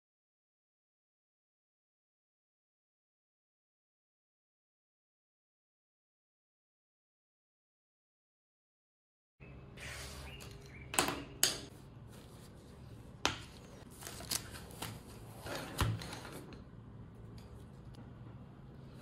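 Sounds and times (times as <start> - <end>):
paper rustling: 12.0 - 16.4
pens set down on wooden table: 13.2 - 15.0.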